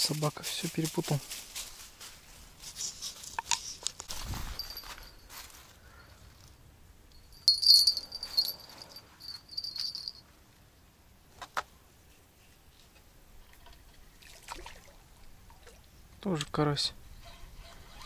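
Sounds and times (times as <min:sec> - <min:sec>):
small bells jingling: 0:04.1 - 0:06.2, 0:07.1 - 0:10.3.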